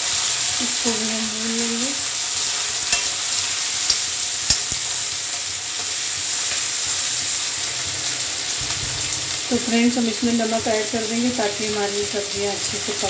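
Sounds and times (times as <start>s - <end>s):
vegetables sizzling in hot oil: 0.0s - 13.0s
metal spatula clicking against pan: 2.9s - 3.2s, 3.8s - 4.8s.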